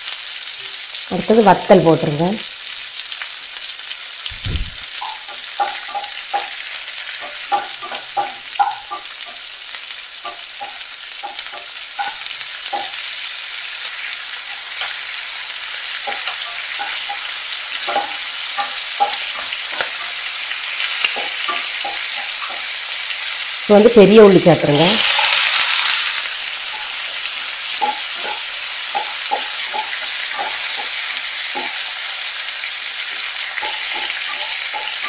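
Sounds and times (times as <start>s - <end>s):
hot oil sizzling: 0.0s - 35.0s
spatula tapping pan: 5.0s - 23.6s, 26.5s - 35.0s.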